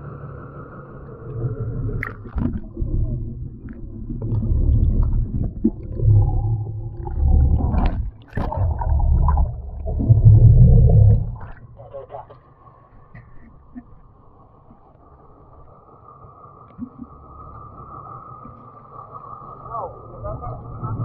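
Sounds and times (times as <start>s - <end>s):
underwater rumbling and gurgling: 0.0s - 21.0s
water splashing: 2.0s - 11.9s.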